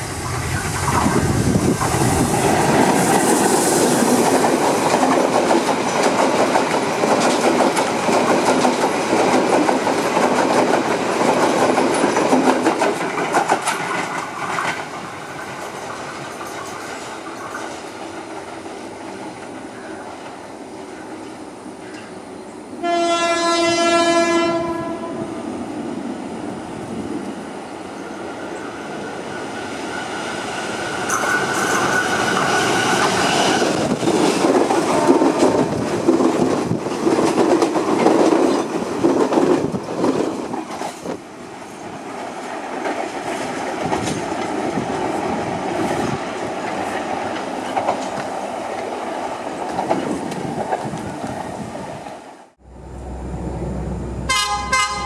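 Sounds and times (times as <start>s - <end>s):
train coaches rumbling: 0.0s - 55.0s
train wheels clattering: 0.6s - 20.4s, 29.5s - 51.4s
train horn blasts: 22.8s - 25.4s, 54.2s - 55.0s.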